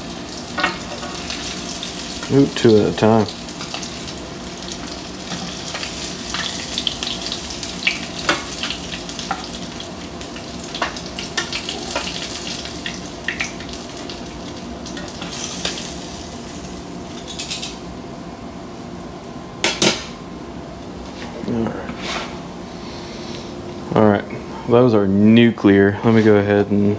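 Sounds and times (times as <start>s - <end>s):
fish frying in hot oil: 0.0s - 17.4s.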